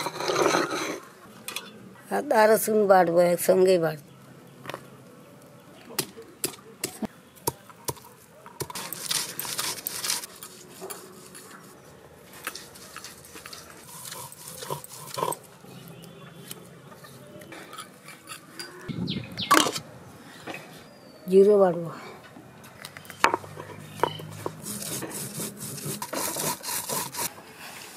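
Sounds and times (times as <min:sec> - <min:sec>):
stone roller scraping slab: 0:00.0 - 0:01.1, 0:23.2 - 0:27.9.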